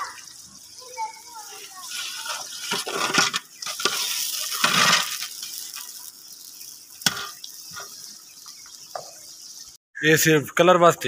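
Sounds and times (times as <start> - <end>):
ladle stirring boiling broth: 1.5 - 6.2.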